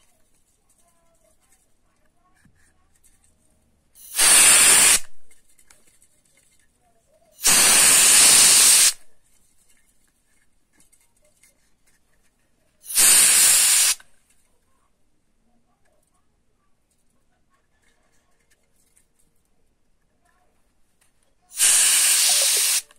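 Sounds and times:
compressed air hissing: 4.0s - 5.3s, 7.4s - 9.1s, 12.8s - 14.1s, 21.5s - 22.9s.

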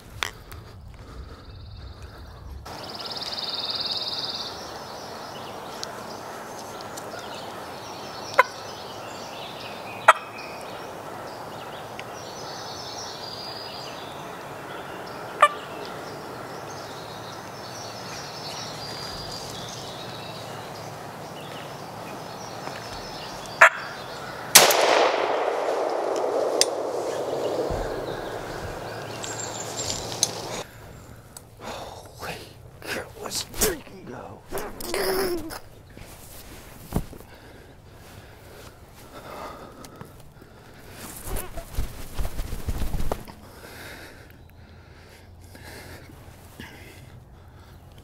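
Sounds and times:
songbird calls: 0.0s - 36.2s
turkey gobbling: 15.4s - 15.6s
sharp clicks: 24.6s - 30.6s.

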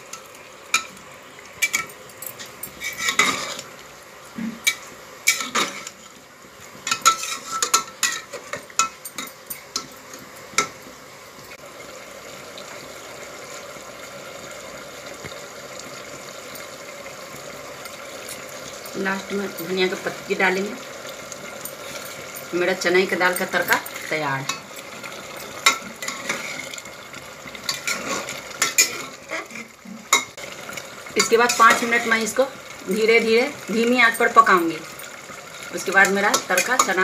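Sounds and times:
spatula scraping metal pot: 2.4s - 3.7s, 6.9s - 8.5s, 25.6s - 26.8s, 27.7s - 29.7s.

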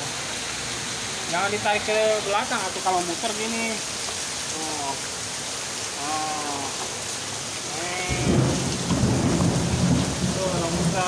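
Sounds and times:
steady rain: 0.0s - 11.0s
thunder rumbling: 7.9s - 11.0s.

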